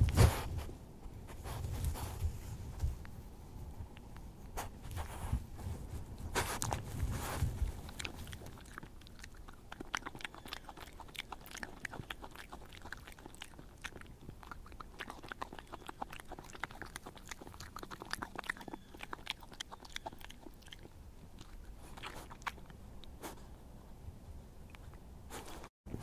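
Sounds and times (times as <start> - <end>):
badger crunching food: 3.9 - 23.6.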